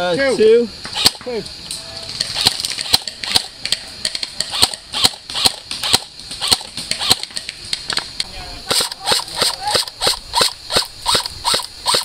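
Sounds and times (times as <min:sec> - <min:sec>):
airsoft rifle firing single shots: 0:04.5 - 0:07.2, 0:08.7 - 0:12.0.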